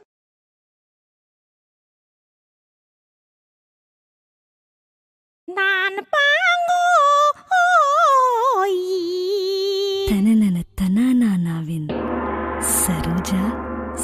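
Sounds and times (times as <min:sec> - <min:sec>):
high voice singing ornamented melody: 0:05.5 - 0:10.6.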